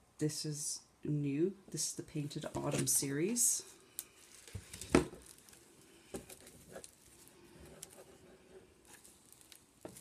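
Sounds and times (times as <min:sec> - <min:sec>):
fingernails crinkling plastic wrapper: 0:04.0 - 0:08.0, 0:08.8 - 0:10.0.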